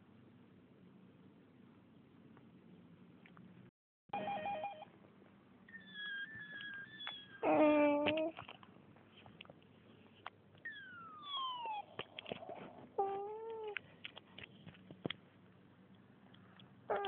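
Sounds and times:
animal crying: 5.7s - 8.3s, 10.6s - 13.8s.

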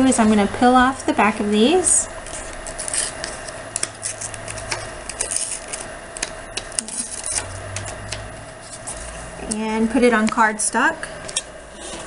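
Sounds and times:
sticker backing peeling crackles: 2.2s - 10.5s.

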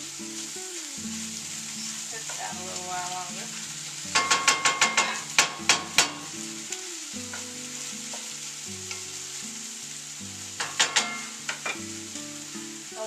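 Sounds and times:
meat sizzling: 0.0s - 13.0s
wooden spatula scraping skillet: 1.8s - 6.3s.

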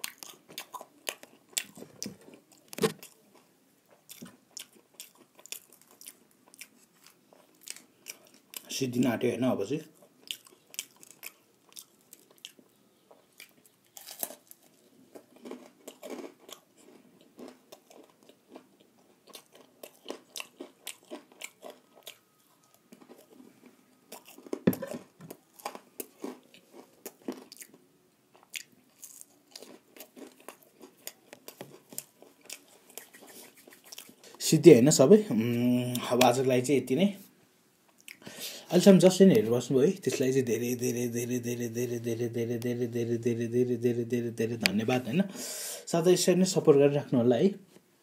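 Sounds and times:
person chewing crunchy food: 0.0s - 8.7s, 9.9s - 34.4s, 37.9s - 38.7s.

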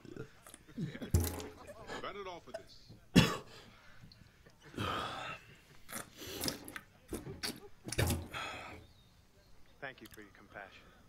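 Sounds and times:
person retching and vomiting: 0.0s - 1.6s, 3.2s - 3.5s, 4.7s - 8.6s.

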